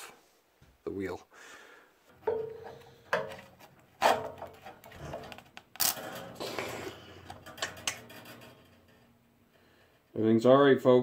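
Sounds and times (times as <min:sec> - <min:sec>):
steel-on-steel knocks: 0:02.1 - 0:05.4
metal scraping: 0:02.1 - 0:10.5.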